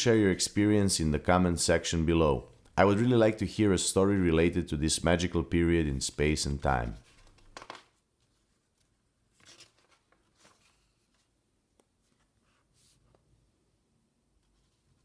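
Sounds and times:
paper pages rustling: 6.8 - 13.4.

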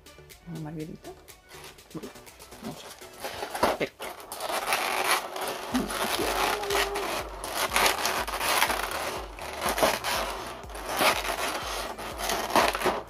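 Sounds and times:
fingers crinkling plastic tray: 2.8 - 13.0.

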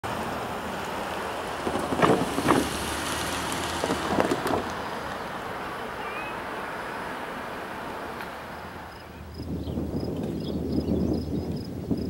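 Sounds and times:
wind on microphone: 8.0 - 12.0.

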